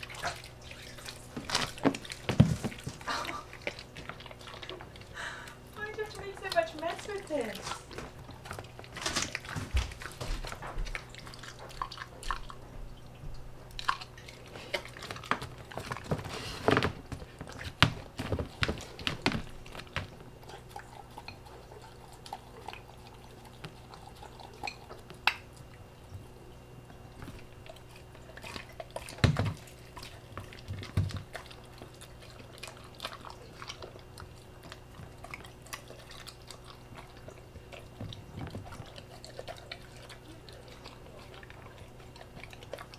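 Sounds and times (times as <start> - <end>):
dog chewing and licking: 0.0 - 42.9
faint steady hum: 0.0 - 42.9.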